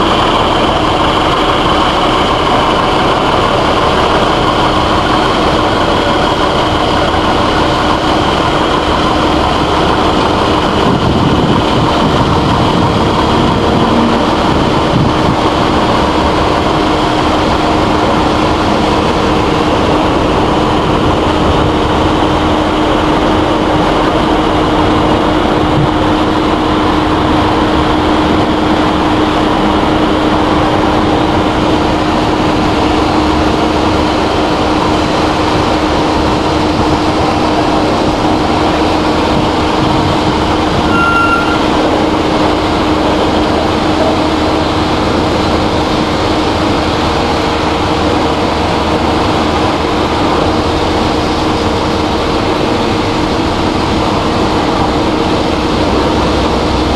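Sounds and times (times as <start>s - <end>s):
tractor engine running: 0.0s - 56.9s.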